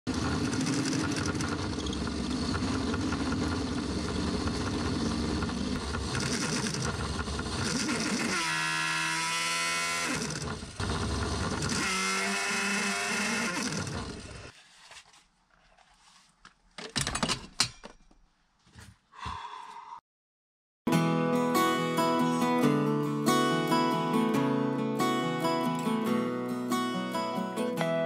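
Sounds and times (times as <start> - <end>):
lathe motor running: 0.1 - 14.5
pitched motor whine: 0.1 - 14.5.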